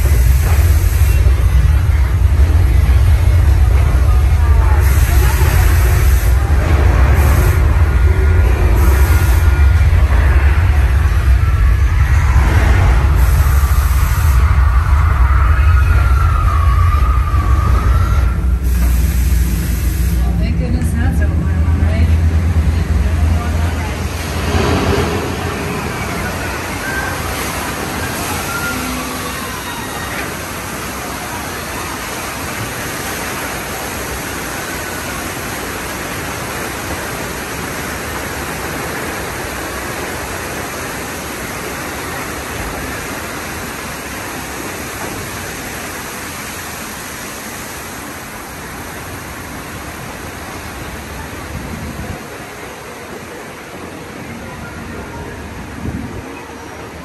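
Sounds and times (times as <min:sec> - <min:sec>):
rumble effects: 0:00.0 - 0:29.5
flood water rushing: 0:00.0 - 0:57.0.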